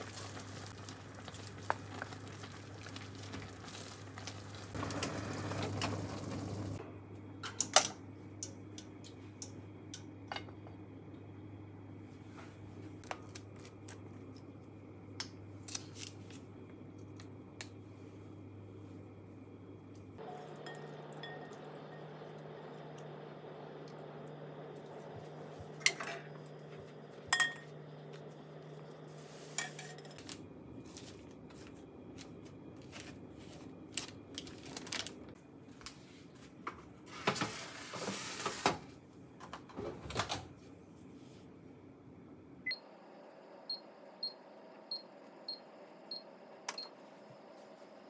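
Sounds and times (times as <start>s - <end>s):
steady low hum: 0.0s - 37.1s
chopsticks clinking on glass bowl: 27.3s - 27.8s.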